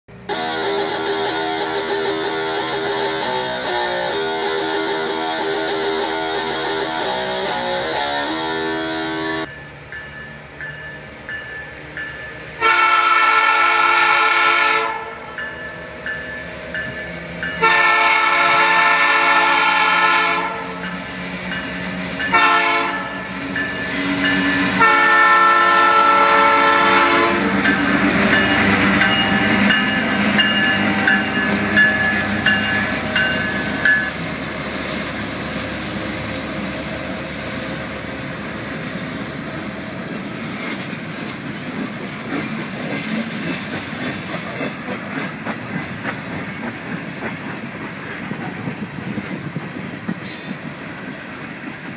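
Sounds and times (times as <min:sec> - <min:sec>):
freight train passing: 0:00.1 - 0:51.9
locomotive air horn blasts: 0:00.2 - 0:09.5, 0:12.6 - 0:15.3, 0:17.6 - 0:20.8, 0:22.3 - 0:23.3, 0:24.6 - 0:28.0.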